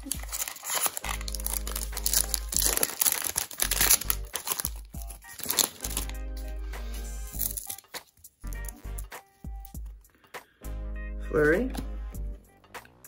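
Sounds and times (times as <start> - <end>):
background music with steady beat: 0.0 - 2.8, 3.7 - 13.0
foil wrapper crinkling: 0.0 - 6.2, 7.3 - 8.7.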